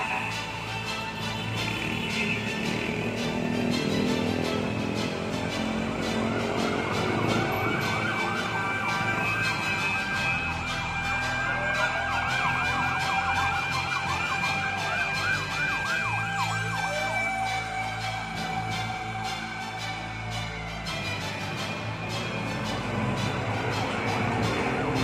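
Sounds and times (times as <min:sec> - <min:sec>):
siren wail: 0:00.0 - 0:25.0
steady siren tones: 0:00.0 - 0:25.0
siren yelp: 0:05.9 - 0:21.3.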